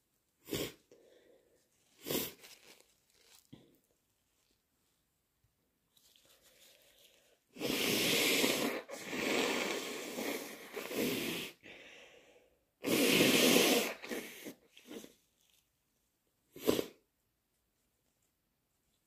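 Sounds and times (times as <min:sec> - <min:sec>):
person blowing nose: 0:00.4 - 0:00.9, 0:01.9 - 0:03.4, 0:06.4 - 0:11.8, 0:12.8 - 0:15.3, 0:16.5 - 0:17.0.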